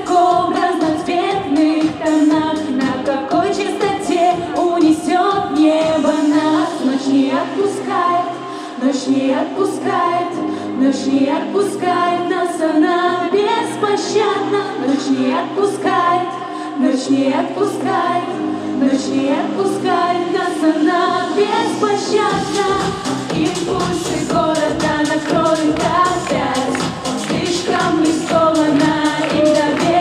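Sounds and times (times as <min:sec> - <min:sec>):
backing track: 0:00.0 - 0:08.6, 0:17.2 - 0:30.0
women singing pop song: 0:00.0 - 0:30.0.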